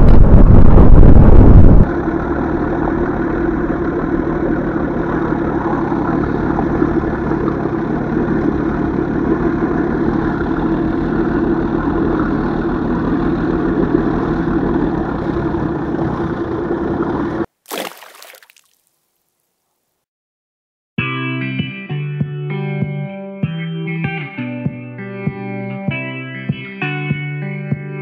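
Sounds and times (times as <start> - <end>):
outboard motor running: 1.4 - 17.5.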